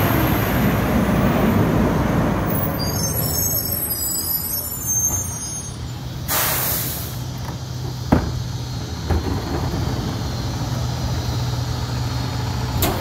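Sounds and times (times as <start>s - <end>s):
truck diesel engine idling: 5.8s - 13.0s
air hiss: 6.3s - 7.3s.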